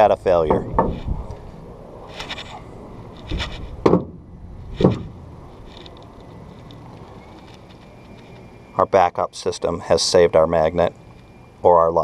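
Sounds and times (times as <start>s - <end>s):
dull knocks on plastic: 3.8s - 4.2s, 4.8s - 5.1s.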